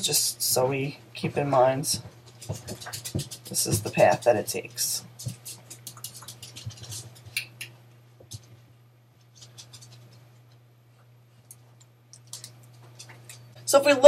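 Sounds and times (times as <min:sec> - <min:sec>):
low electrical hum: 0:00.0 - 0:14.0
pen scratching on drawing surface: 0:02.3 - 0:04.2.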